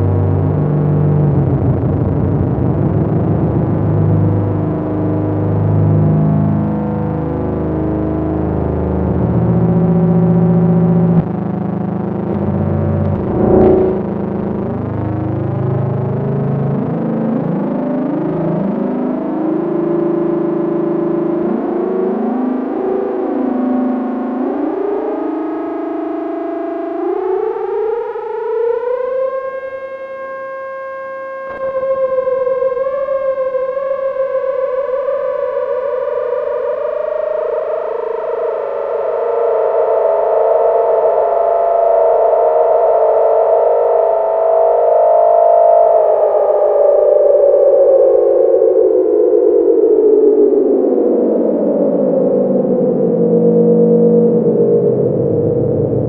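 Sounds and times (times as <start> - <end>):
synthesizer note with delay: 13.0 - 14.5.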